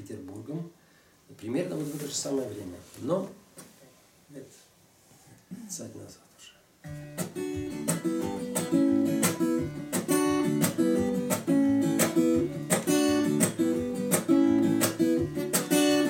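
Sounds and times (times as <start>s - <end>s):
acoustic guitar strumming chords: 6.8s - 16.0s.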